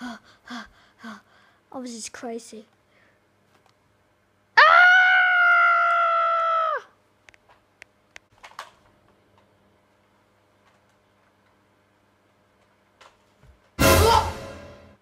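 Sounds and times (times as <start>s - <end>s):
child screaming: 4.6s - 6.9s.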